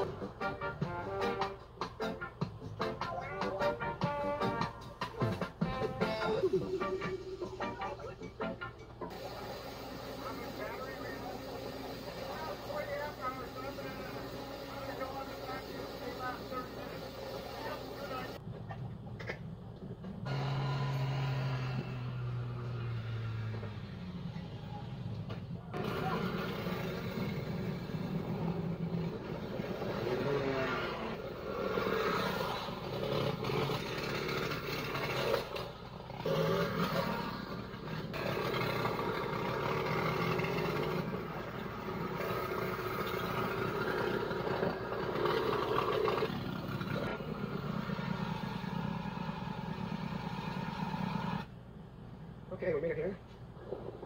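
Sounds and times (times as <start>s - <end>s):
small gas engine changing speed: 9.0s - 51.6s.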